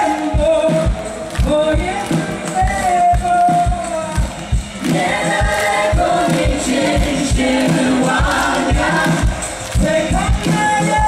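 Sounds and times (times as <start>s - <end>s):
kick drum beat: 0.0s - 11.0s
voices singing in harmony: 4.8s - 10.2s.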